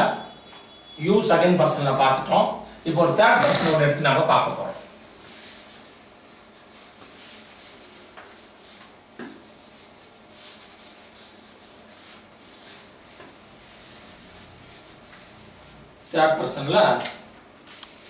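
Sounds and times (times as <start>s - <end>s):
duster rubbing whiteboard: 3.2s - 4.0s, 5.2s - 15.8s.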